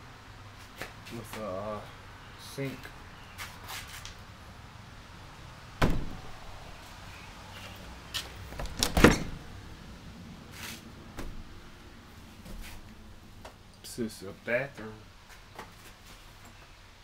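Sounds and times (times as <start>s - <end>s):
door knocks: 5.8s - 6.2s
door rattle and bang: 5.8s - 6.4s, 8.6s - 9.5s.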